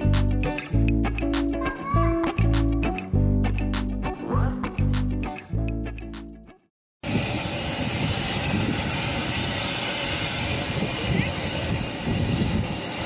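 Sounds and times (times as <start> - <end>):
wind on microphone: 7.0 - 13.0.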